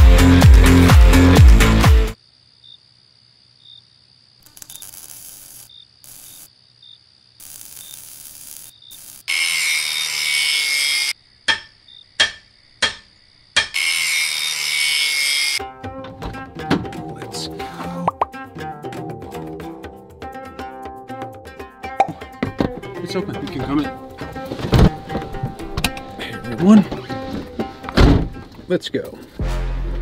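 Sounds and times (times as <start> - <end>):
sharp knocks: 11.5 - 13.8.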